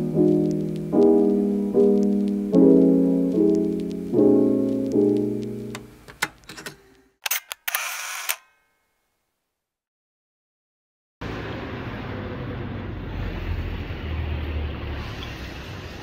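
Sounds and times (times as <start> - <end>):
piano chords: 0.0 - 6.1
camera shutter clicking and whirring: 7.2 - 8.6.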